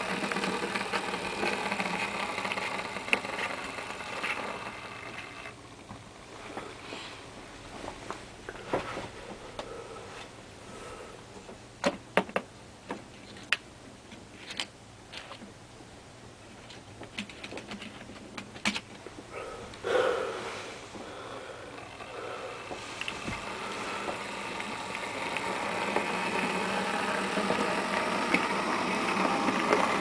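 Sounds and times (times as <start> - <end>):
low steady background noise: 0.0 - 30.0
rustling noise: 6.3 - 9.4.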